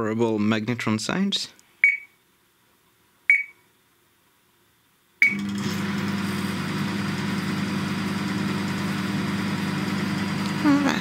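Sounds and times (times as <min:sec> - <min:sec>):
microwave keypad beeps: 0:01.8 - 0:02.2, 0:03.3 - 0:03.6, 0:05.2 - 0:05.5
microwave oven humming: 0:05.2 - 0:11.0
fan rushing: 0:05.4 - 0:11.0.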